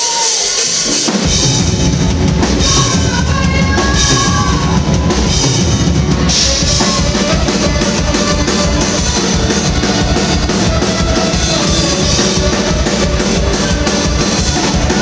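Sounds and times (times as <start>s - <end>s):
live ska-punk band playing: 0.0s - 15.0s
saxophone long notes: 6.1s - 15.0s.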